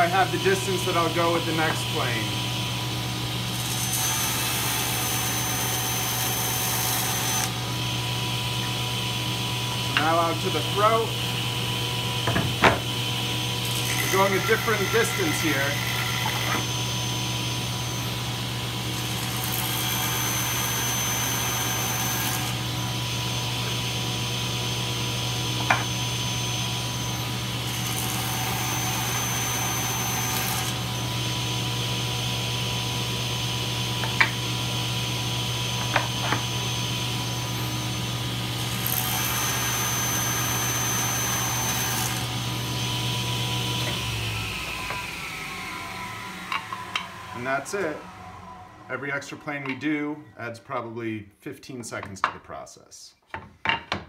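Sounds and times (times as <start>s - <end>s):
table saw running: 0.0s - 50.4s
saw blade cutting wood: 3.5s - 7.6s, 13.6s - 16.8s, 19.0s - 22.7s, 25.6s - 26.0s, 27.6s - 30.9s, 34.0s - 34.5s, 35.8s - 36.6s, 38.5s - 48.0s
saw winding down: 13.6s - 23.8s, 25.6s - 31.6s, 33.9s - 50.3s.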